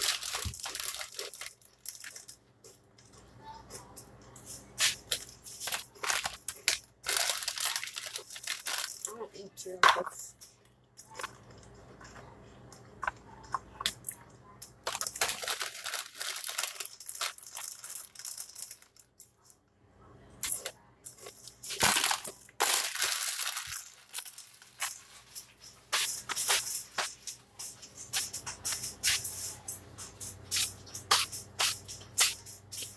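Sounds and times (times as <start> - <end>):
chips crunching: 0.0 - 2.4, 4.8 - 9.2, 14.8 - 19.0, 20.4 - 27.2
plastic snack bag crinkling: 0.0 - 2.4, 4.8 - 9.2, 14.8 - 19.1, 20.5 - 27.0.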